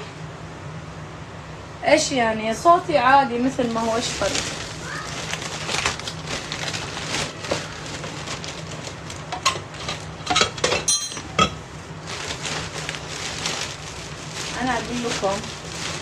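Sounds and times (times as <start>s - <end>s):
dishes and utensils clinking: 9.3s - 11.6s.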